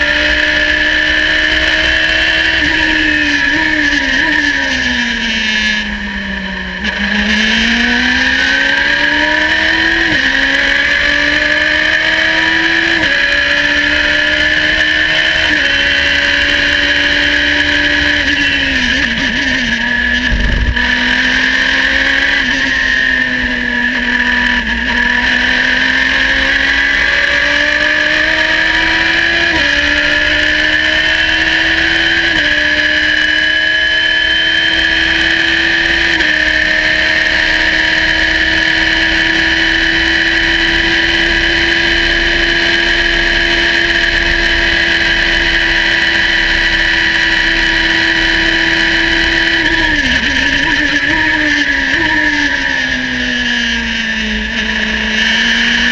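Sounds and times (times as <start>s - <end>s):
race car engine revving: 0.0s - 55.9s
steady high whine: 14.1s - 21.5s, 38.1s - 55.2s
low thump: 20.2s - 20.8s.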